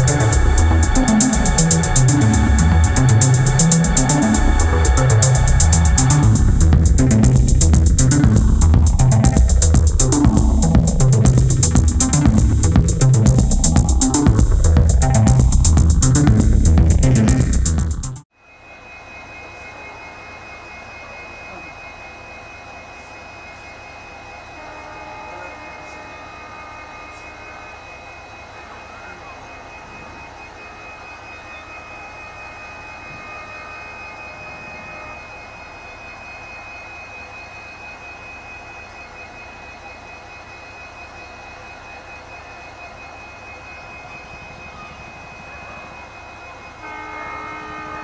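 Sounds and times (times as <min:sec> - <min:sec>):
diesel locomotive engine humming: 0:00.0 - 0:48.0
locomotive horn: 0:24.5 - 0:28.0, 0:32.6 - 0:35.6, 0:45.2 - 0:48.0.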